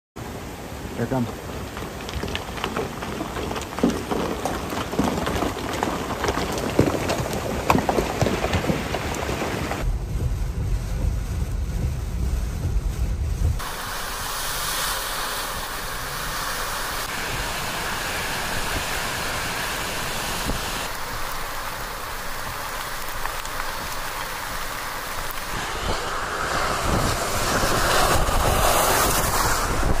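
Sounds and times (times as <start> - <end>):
heavy rain: 0.2 - 30.0
truck on wet pavement: 0.3 - 30.0
vehicles driving through floodwater: 13.6 - 30.0.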